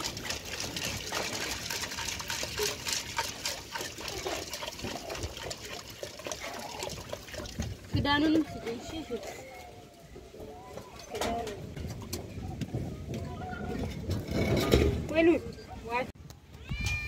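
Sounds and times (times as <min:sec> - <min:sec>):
water pouring into a pot: 0:00.0 - 0:08.0
water splashing over beans: 0:00.0 - 0:09.0.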